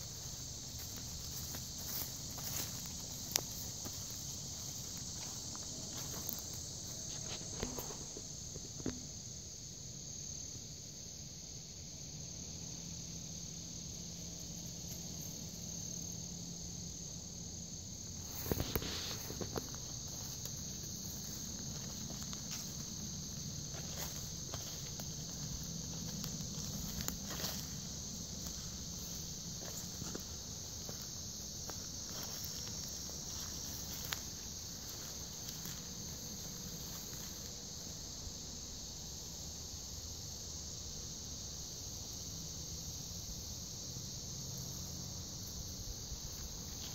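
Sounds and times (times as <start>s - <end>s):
footsteps rustling through leaf litter: 0.0s - 7.8s, 18.2s - 37.4s
high-pitched insect chorus: 0.0s - 46.9s.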